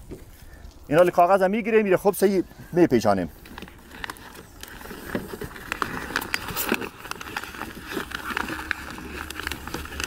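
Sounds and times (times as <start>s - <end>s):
paper rustling and crinkling: 3.0s - 10.0s.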